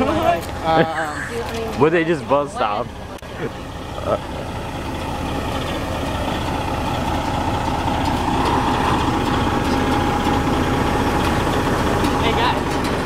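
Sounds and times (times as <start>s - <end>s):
diesel truck engine running: 0.0s - 13.0s
steady whine: 7.6s - 11.5s.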